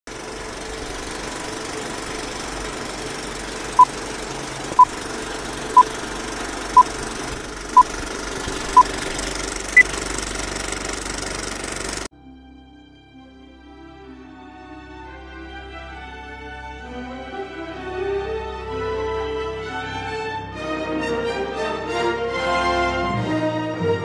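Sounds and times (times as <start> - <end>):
film projector rattle and hiss: 0.1 - 12.1.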